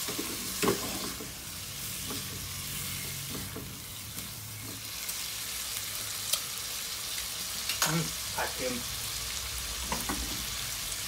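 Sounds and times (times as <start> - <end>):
spatula scraping a pan: 0.0 - 4.9
food sizzling in a pan: 0.0 - 11.0.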